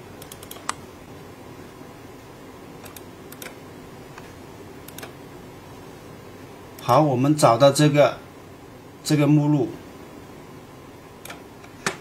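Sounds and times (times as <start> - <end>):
room and fan hiss: 0.0 - 12.0
computer mouse clicks: 0.2 - 0.8, 2.8 - 3.6, 4.9 - 5.2.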